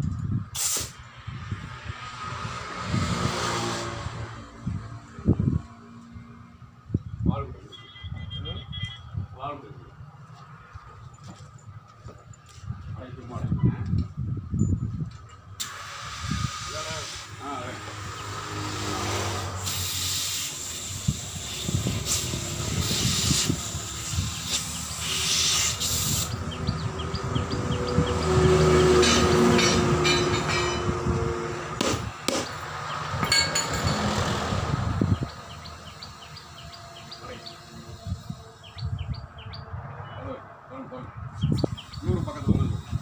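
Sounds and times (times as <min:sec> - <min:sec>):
compressed air hissing: 0:00.5 - 0:01.1, 0:15.6 - 0:29.8
sharp metallic knocks: 0:28.2 - 0:34.5.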